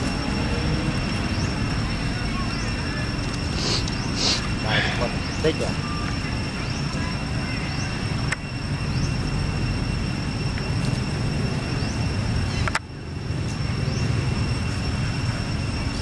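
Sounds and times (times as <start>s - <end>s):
faint high-pitched whine: 0.0s - 16.0s
low outdoor rumble: 0.0s - 16.0s.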